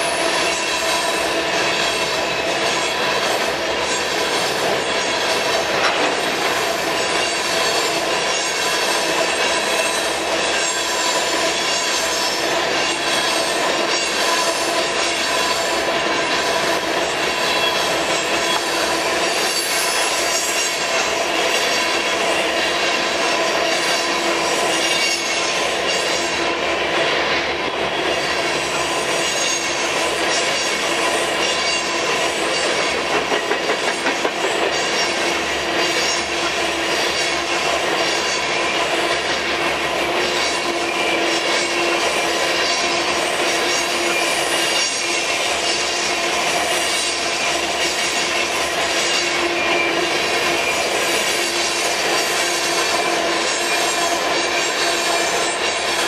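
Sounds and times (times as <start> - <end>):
high wheel squeal: 0.0 - 26.6, 27.8 - 56.0
steel wheels rumbling on rail: 0.0 - 56.0
wheels clacking over rail: 4.3 - 10.8.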